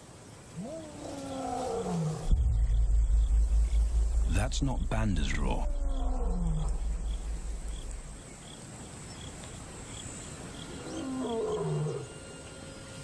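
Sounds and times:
distant lion roaring: 0.6s - 8.2s.

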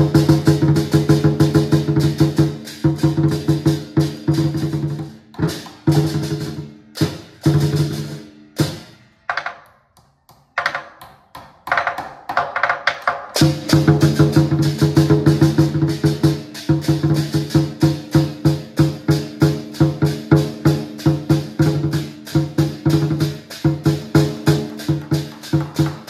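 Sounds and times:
large drum beaten fast: 0.0s - 8.8s, 13.4s - 26.0s
hand cymbals clashing: 0.0s - 9.2s, 13.4s - 26.0s.

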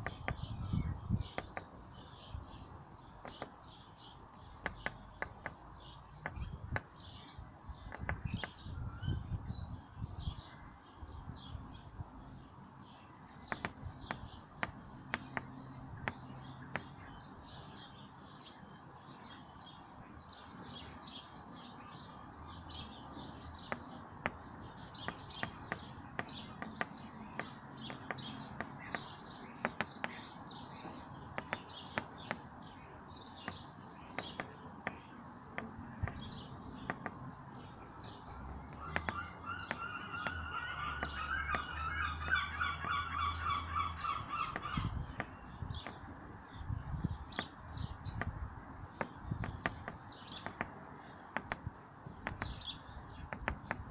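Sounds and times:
sparrows chirping: 0.0s - 53.9s
sharp taps: 3.2s - 3.6s, 4.6s - 5.6s, 7.9s - 8.6s, 13.5s - 16.9s, 23.6s - 30.3s, 31.3s - 32.5s, 34.2s - 36.2s, 36.8s - 37.2s, 38.6s - 43.0s, 49.0s - 50.8s, 51.4s - 52.6s, 53.3s - 53.9s
low rapidly repeated bird call: 20.3s - 53.9s.

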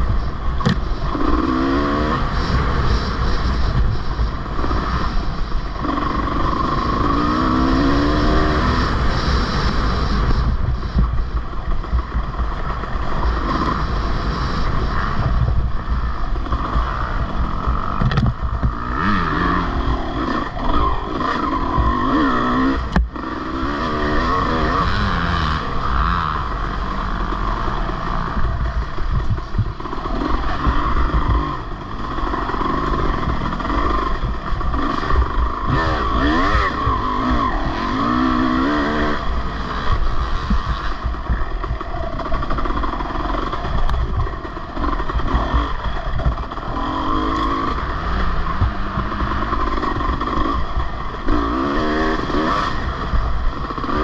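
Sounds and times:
racing engine revving: 16.4s - 54.0s.

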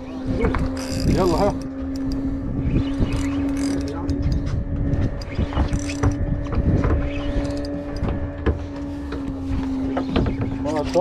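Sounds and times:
boat engine humming: 0.0s - 11.0s
wind rumble on microphone: 0.0s - 11.0s
fishing reel clicking and rattling: 0.7s - 2.2s, 3.0s - 4.4s, 5.2s - 6.1s, 7.3s - 8.0s.

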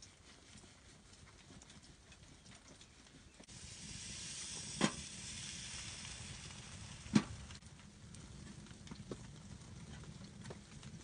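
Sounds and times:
bread hissing on hot stove: 3.4s - 7.6s.

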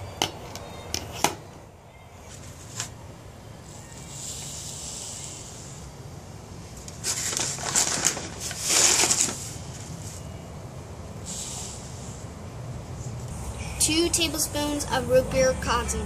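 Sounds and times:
paper bag rustling: 6.8s - 10.3s.

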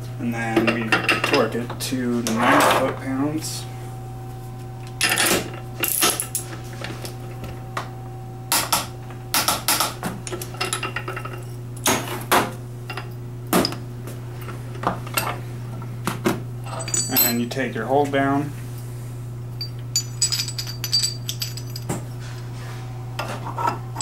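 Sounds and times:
steady low hum: 0.0s - 24.0s
tools set down on bench: 20.0s - 22.1s.

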